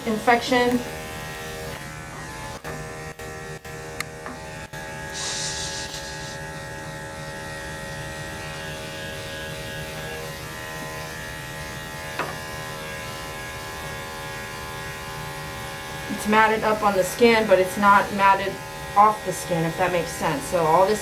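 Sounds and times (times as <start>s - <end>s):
electric clippers running: 0.0s - 21.0s
brief hiss: 5.2s - 6.3s.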